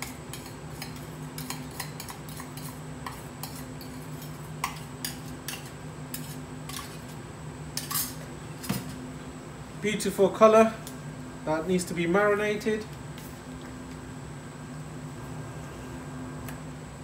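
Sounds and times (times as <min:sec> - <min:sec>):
steady low hum: 0:00.0 - 0:17.0
metal spoon scraping dish: 0:00.3 - 0:07.2, 0:07.8 - 0:08.2.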